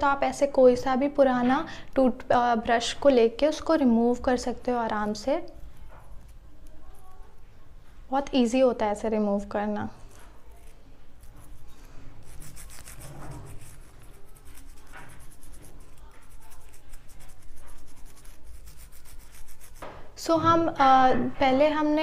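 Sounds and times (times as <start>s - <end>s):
toothbrush scrubbing fingernails: 10.1s - 19.8s.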